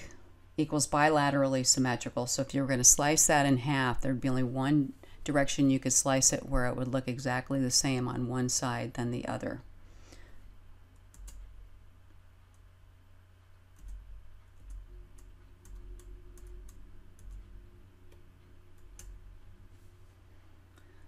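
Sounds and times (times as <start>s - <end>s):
steady low hum: 0.0s - 21.0s
computer mouse clicking: 11.0s - 11.5s, 13.7s - 17.5s, 18.1s - 19.2s.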